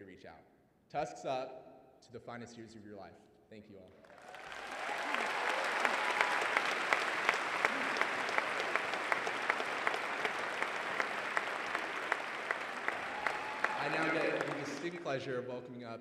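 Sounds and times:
audience applauding: 0:04.0 - 0:15.3.

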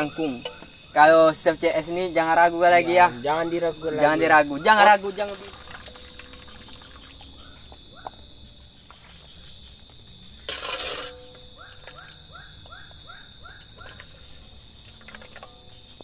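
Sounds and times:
high-pitched insect drone: 0:00.0 - 0:16.0
frog croaking: 0:01.8 - 0:08.3.

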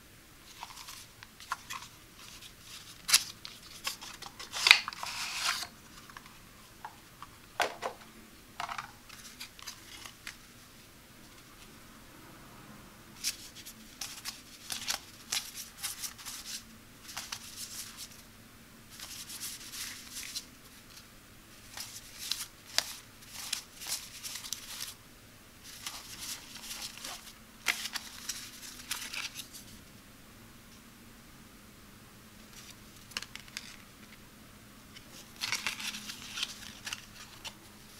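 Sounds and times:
packaging rustling: 0:00.5 - 0:06.4, 0:21.7 - 0:25.0, 0:25.6 - 0:29.6, 0:35.0 - 0:37.6.

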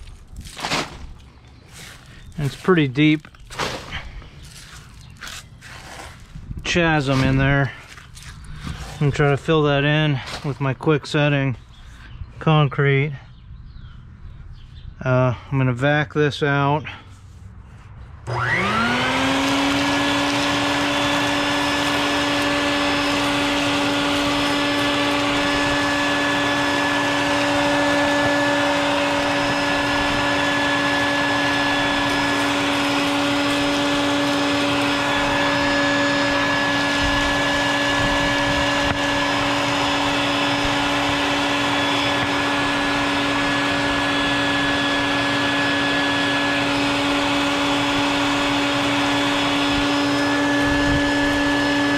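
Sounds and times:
shop vacuum motor whine: 0:01.7 - 0:11.4, 0:18.2 - 0:51.9.

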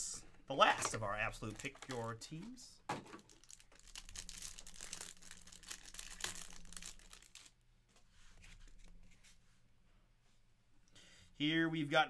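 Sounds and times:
plastic wrapper crinkling: 0:01.2 - 0:07.6.

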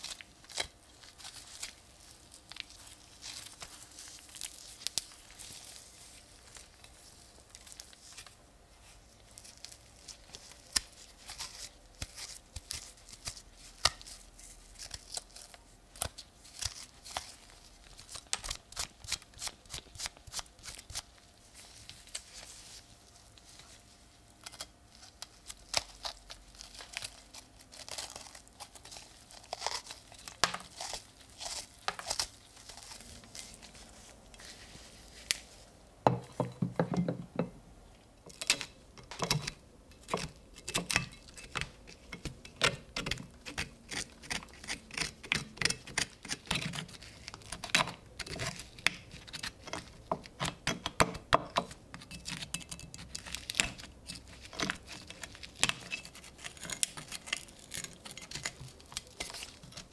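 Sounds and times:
crumbly wood crackling and snapping: 0:52.5 - 0:59.9.

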